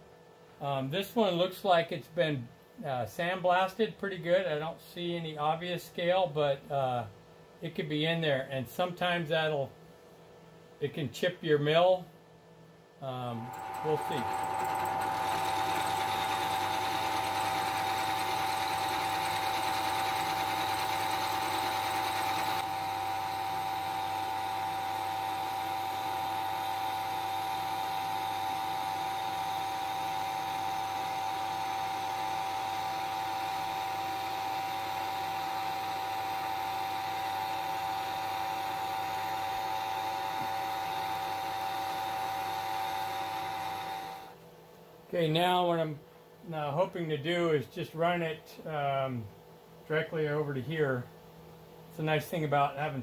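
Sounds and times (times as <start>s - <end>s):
milling machine cutting metal: 13.3s - 44.2s.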